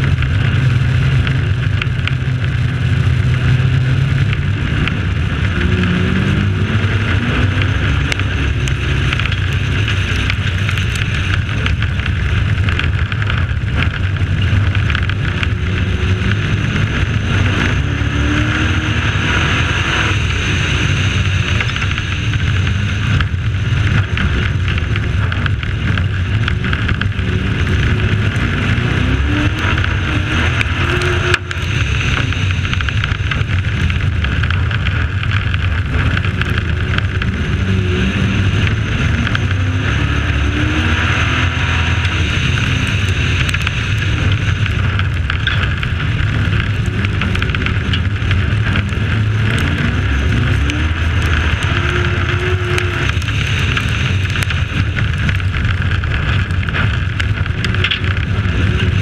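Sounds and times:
truck engine revving hard: 15.6 - 23.2, 35.8 - 55.2.

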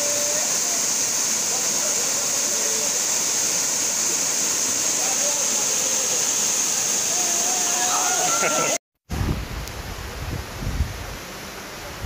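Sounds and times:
waterfall pouring onto rock: 0.0 - 8.7
faint voices: 0.0 - 8.8.

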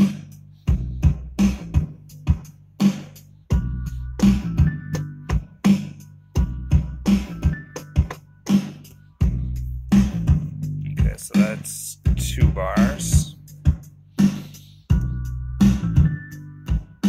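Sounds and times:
hip-hop drum beat: 0.0 - 17.0
deep bass: 9.2 - 14.0, 14.9 - 16.9.

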